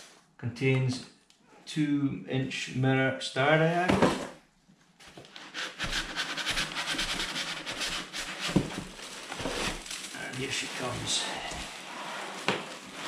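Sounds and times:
packaging rustling and crackling: 7.0s - 13.0s.

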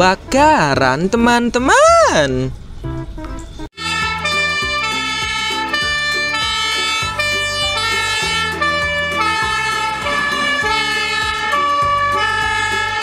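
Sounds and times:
truck engine hum: 0.0s - 13.0s
fire engine siren: 3.8s - 13.0s.

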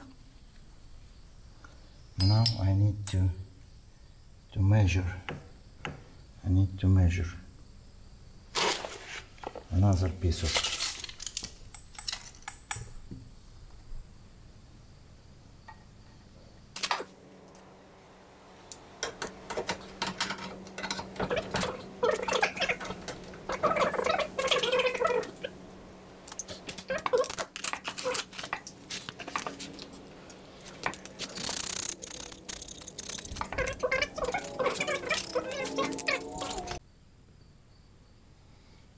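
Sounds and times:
hand tools and pipe fittings clinking: 2.2s - 3.2s, 19.0s - 24.8s, 26.3s - 36.8s.

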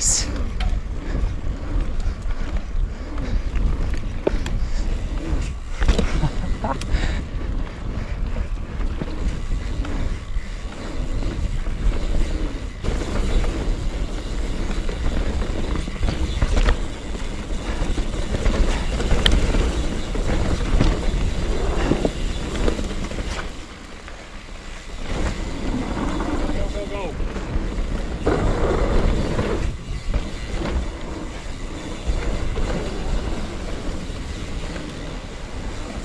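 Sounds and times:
wind buffeting microphone: 0.0s - 23.6s
bike tyres rumbling and rattling: 0.0s - 36.0s.

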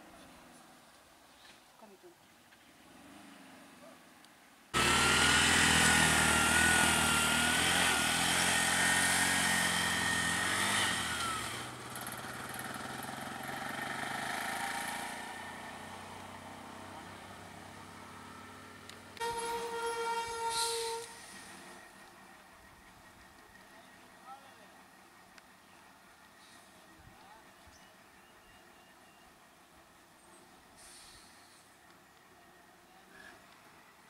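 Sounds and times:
vehicle engine running: 4.8s - 19.4s.

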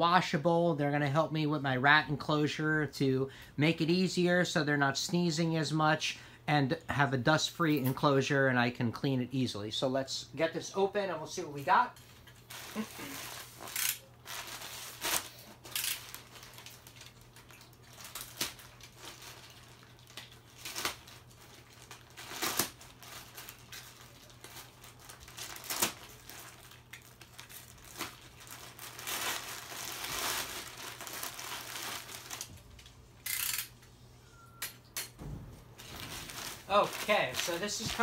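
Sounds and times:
plastic mailer crinkling: 12.4s - 32.9s, 35.7s - 38.0s.

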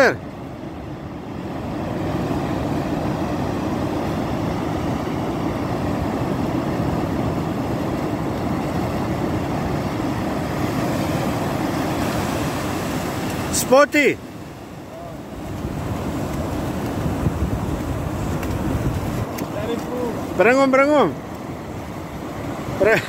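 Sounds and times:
surf washing up beach: 0.0s - 23.0s
wind buffeting microphone: 14.5s - 20.4s.

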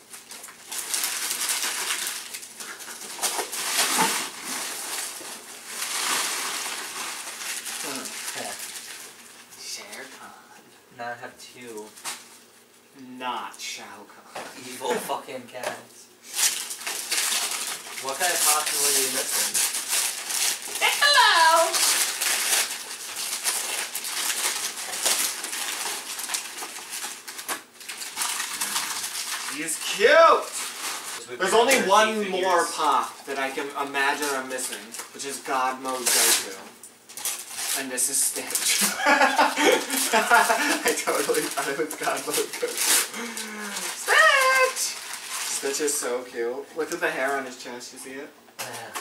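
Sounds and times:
wrapping paper tearing and crumpling: 0.0s - 10.2s, 16.2s - 46.2s.

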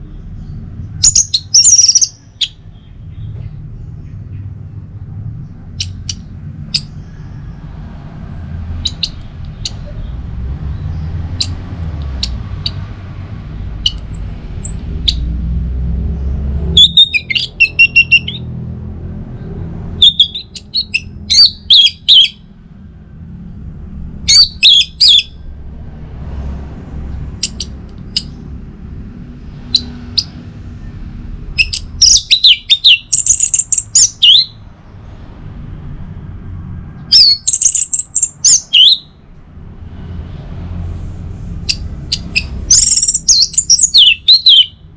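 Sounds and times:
steady low hum: 22.4s - 32.0s.

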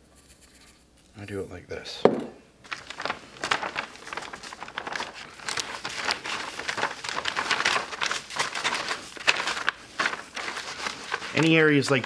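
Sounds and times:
plastic bag crinkling: 2.6s - 12.0s.

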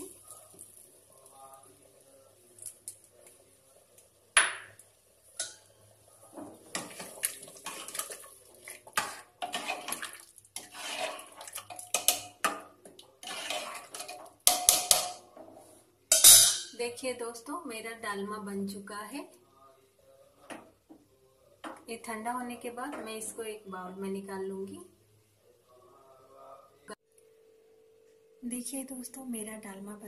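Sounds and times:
ladle stirring thick dal: 0.0s - 16.2s
metal clinks and scrapes on pot: 9.0s - 12.4s, 13.2s - 15.2s, 16.1s - 16.7s.

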